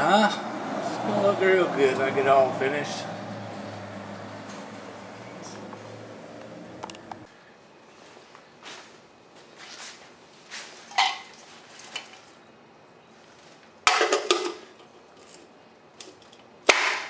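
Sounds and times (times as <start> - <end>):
metal wheel cap clanking: 13.9 - 14.6.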